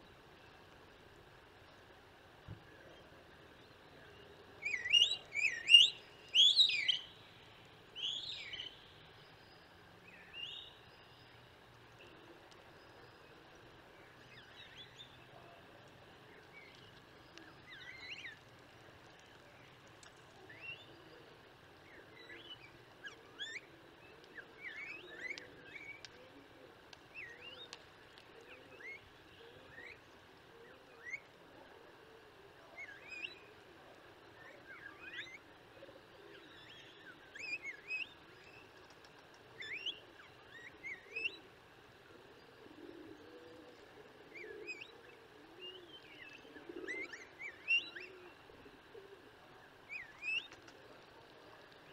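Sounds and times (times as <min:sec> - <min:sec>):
starlings whistling: 0:04.6 - 0:07.2, 0:49.9 - 0:50.6.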